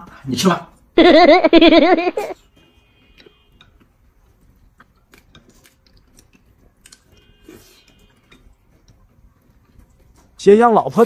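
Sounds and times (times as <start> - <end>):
high-pitched warbling laughter: 1.0 - 2.4
chopsticks clicking on bowls: 3.2 - 7.2, 7.9 - 10.4
chewing: 3.2 - 10.4.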